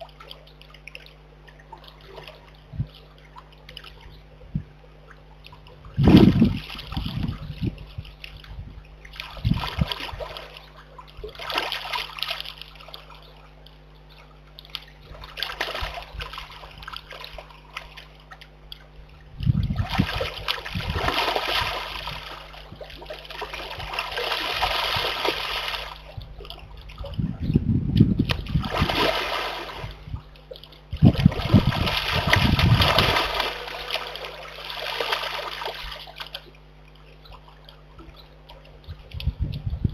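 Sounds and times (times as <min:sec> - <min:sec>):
animal splashing in muddy pool: 0:09.1 - 0:13.2, 0:14.7 - 0:18.2, 0:19.5 - 0:27.2, 0:28.2 - 0:36.6.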